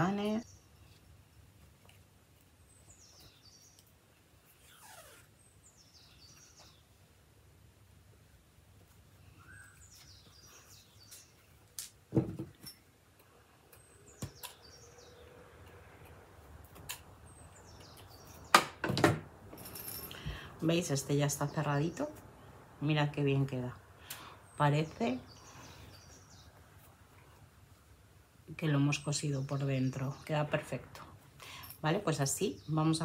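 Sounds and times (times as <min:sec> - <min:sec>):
thread pulled through fabric: 0:04.4 - 0:05.3.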